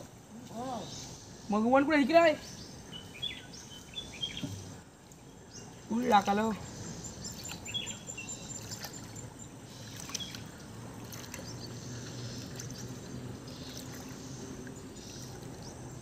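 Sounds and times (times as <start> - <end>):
water sloshing and splashing: 3.5 - 16.0.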